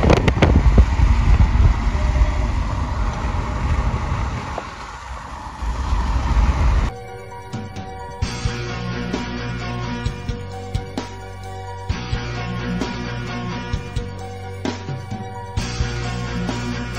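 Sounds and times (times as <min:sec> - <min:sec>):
car road noise: 0:00.0 - 0:06.9
wind rumble on microphone: 0:00.0 - 0:06.9
background music: 0:06.9 - 0:16.9.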